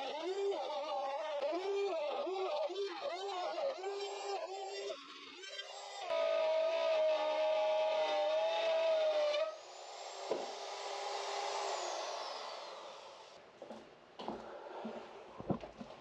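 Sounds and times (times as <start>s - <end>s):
power tool whining: 0.0s - 13.4s
power tool cutting wood: 0.9s - 13.4s.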